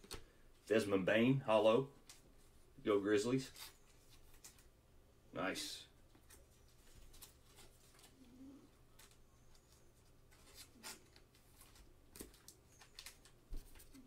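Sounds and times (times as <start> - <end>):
low cooing: 8.1 - 8.8.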